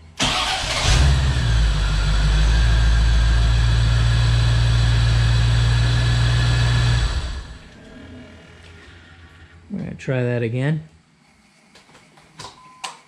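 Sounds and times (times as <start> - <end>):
car engine idling: 0.2 - 7.8.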